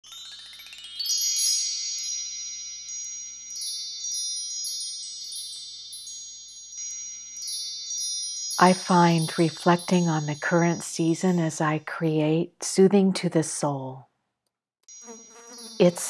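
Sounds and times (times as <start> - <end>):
wind chimes ringing: 0.0 - 11.6, 14.9 - 16.0.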